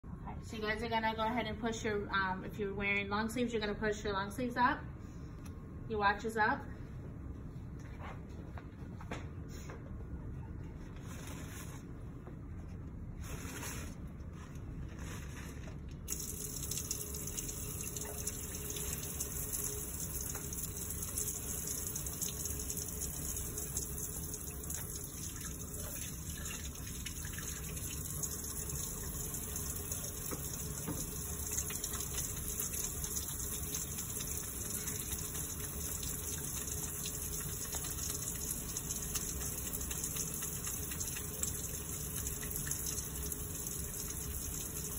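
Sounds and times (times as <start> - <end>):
faucet running into sink: 16.1 - 44.9.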